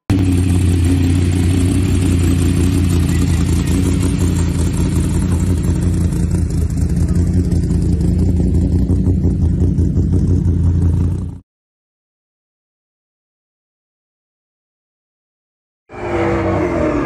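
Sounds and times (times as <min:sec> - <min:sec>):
buggy engine idling: 0:00.1 - 0:11.4.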